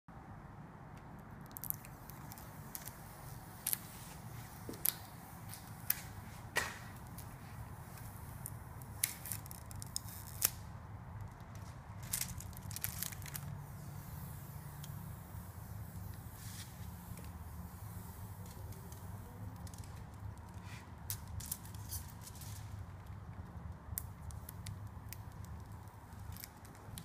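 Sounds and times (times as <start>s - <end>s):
steady low hum: 0.2s - 27.0s
plastic film peeling crackles: 1.4s - 14.0s, 18.2s - 27.0s.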